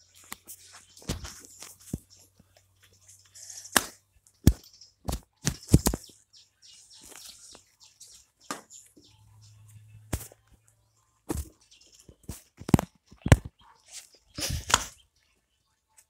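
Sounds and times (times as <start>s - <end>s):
footsteps: 11.3s - 13.5s.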